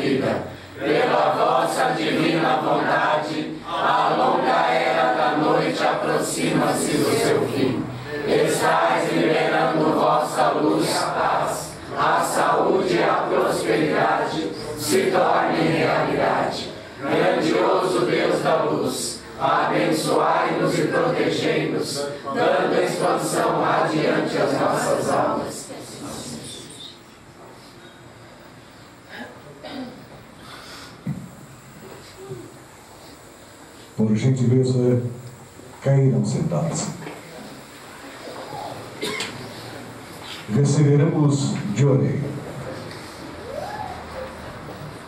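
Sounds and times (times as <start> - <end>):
congregation chanting in unison: 0.0 - 26.8.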